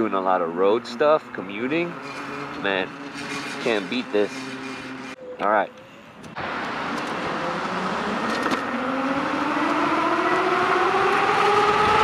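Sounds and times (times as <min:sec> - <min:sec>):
electric motor whining: 0:01.5 - 0:12.0
rushing wind: 0:06.0 - 0:12.0.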